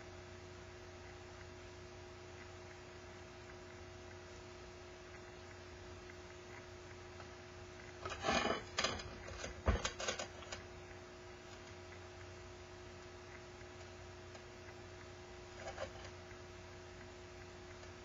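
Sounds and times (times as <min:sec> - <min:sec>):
faint steady hum: 0:00.0 - 0:18.0
ceramic bowl scraping on table: 0:08.0 - 0:10.4, 0:15.5 - 0:16.1.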